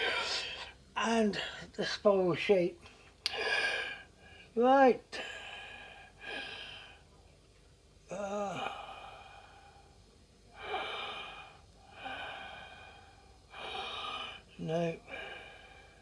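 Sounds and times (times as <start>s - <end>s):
man breathing: 2.9s - 7.2s, 8.1s - 16.0s.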